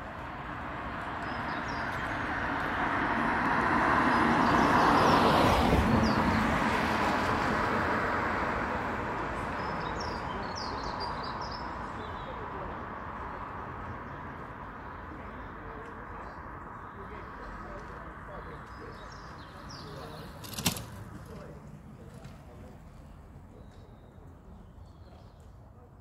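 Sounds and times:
road vehicle passing by: 0.0s - 25.0s.

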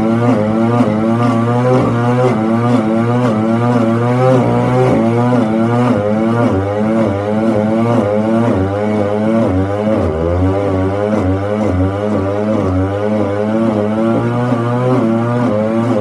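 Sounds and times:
stump grinder grinding: 0.0s - 8.0s.

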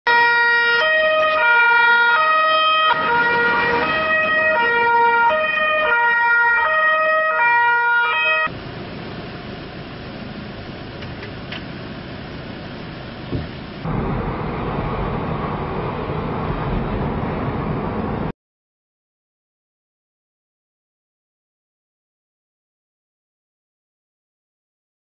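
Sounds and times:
two-tone police siren: 0.1s - 8.5s
engines and street noise: 0.1s - 18.3s.

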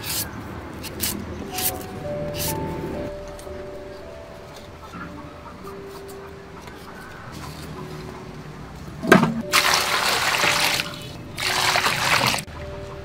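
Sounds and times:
water pouring into metal pot: 9.5s - 12.5s.

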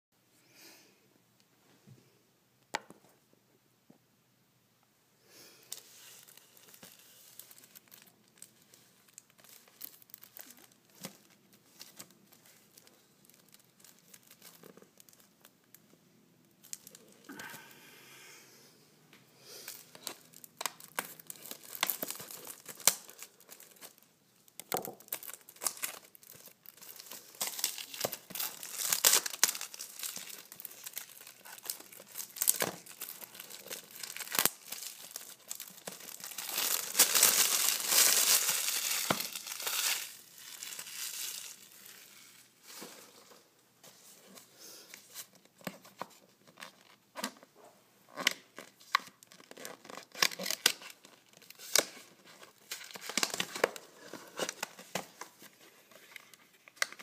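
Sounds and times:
cellophane crinkling and tearing: 5.7s - 15.8s, 16.5s - 17.3s, 19.7s - 43.3s, 48.1s - 57.0s.

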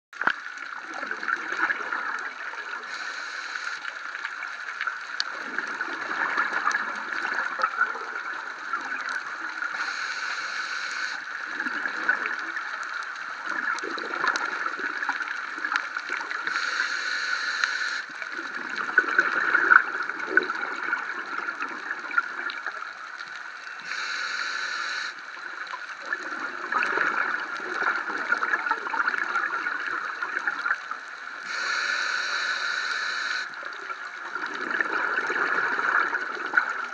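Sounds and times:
underwater hum: 0.2s - 36.9s
exhaled bubbles gurgling: 0.4s - 36.9s
regulator hiss: 2.8s - 4.1s, 9.8s - 11.3s, 16.4s - 18.1s, 23.6s - 25.4s, 31.4s - 33.6s.

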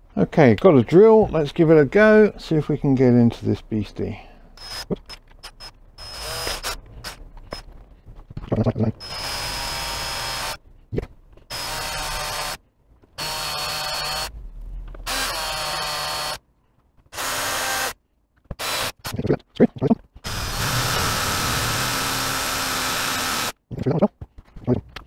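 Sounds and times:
cordless drill running: 5.4s - 7.2s, 9.0s - 10.6s, 11.5s - 12.6s, 13.2s - 14.3s, 15.0s - 16.4s, 17.1s - 18.0s, 18.6s - 19.0s, 20.2s - 23.6s.

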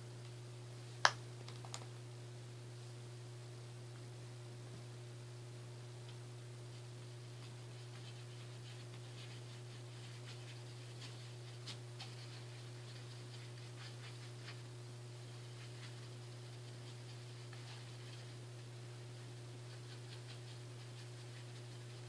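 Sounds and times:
steady low hum: 0.0s - 22.0s
brush scratching on paper plate: 7.2s - 22.0s.

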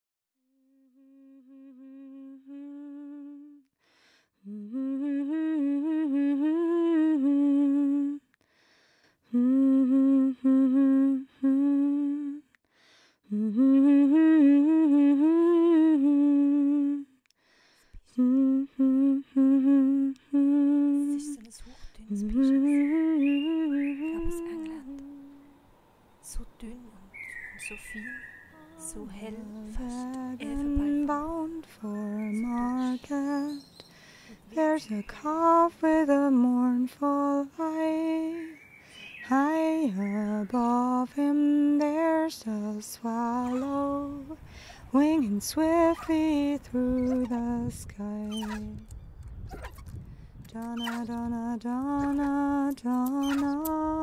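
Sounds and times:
person humming: 18.2s - 25.5s, 26.3s - 33.6s, 40.6s - 44.4s, 45.0s - 49.0s, 50.4s - 54.0s.

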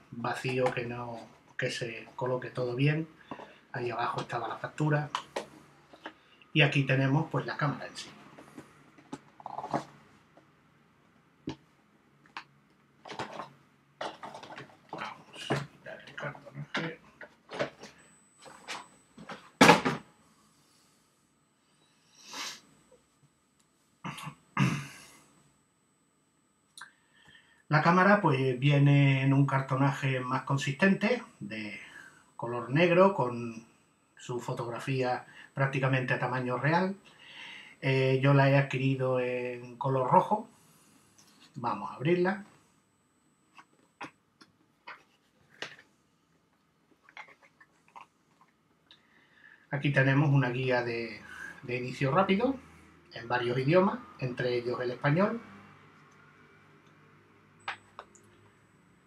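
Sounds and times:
man coughing: 24.1s - 25.2s.

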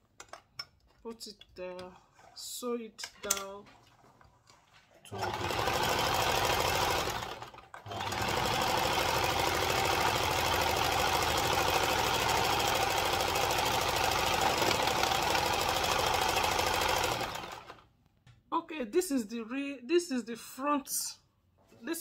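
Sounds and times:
sewing machine running: 5.1s - 17.8s.

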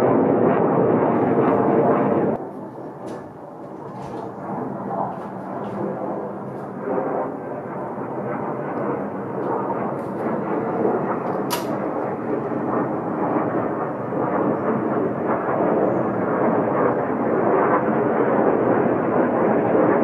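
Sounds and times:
jet engine rushing overhead: 0.0s - 20.0s.

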